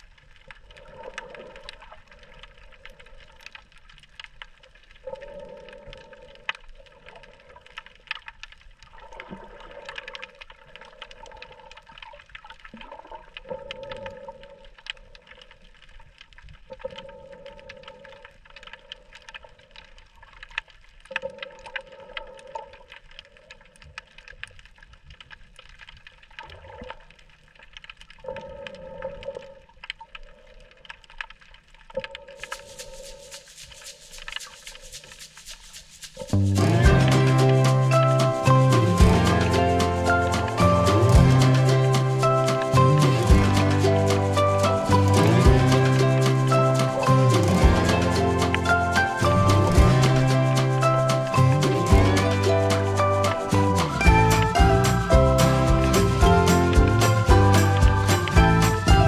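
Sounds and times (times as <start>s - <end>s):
underwater clicks crackling: 0.0s - 58.9s
underwater water noise: 0.0s - 59.0s
music: 36.4s - 59.0s.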